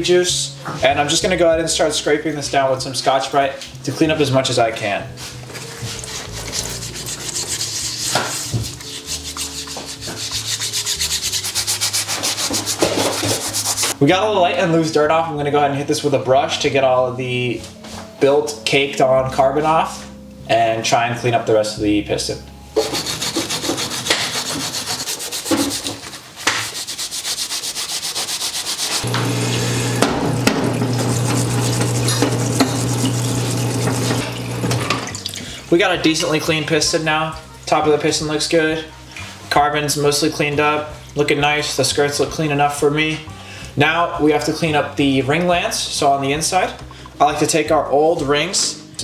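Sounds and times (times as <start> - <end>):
scouring pad scrubbing metal: 5.5 - 14.0, 22.8 - 35.0
solvent splashing: 5.6 - 14.0, 22.8 - 35.4
pump humming: 29.0 - 35.6.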